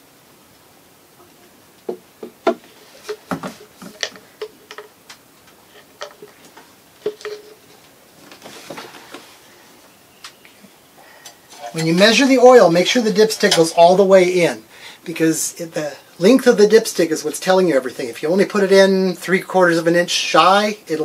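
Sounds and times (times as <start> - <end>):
plastic jug set down: 1.9 - 4.3.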